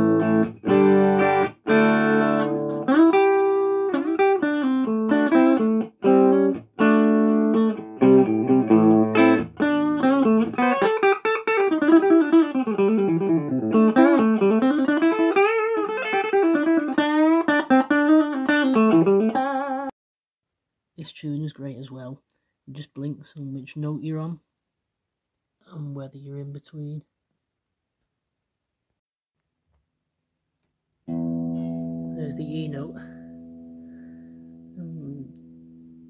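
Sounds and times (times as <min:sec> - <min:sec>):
electric guitar playing: 0:00.0 - 0:19.9, 0:31.1 - 0:36.0.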